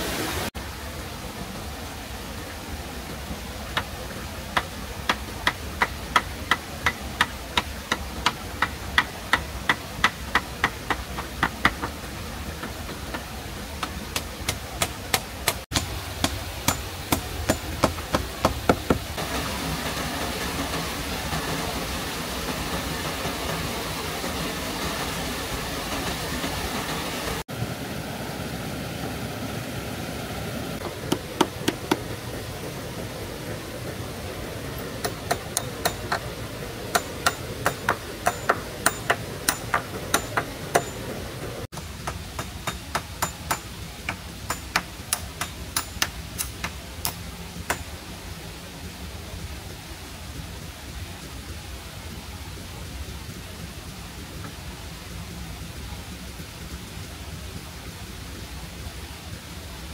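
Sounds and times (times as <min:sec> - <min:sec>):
steady hiss: 0:00.0 - 0:59.9
hand tool sharp strikes: 0:12.6 - 0:19.2, 0:35.0 - 0:36.3, 0:36.9 - 0:41.2, 0:41.8 - 0:47.9.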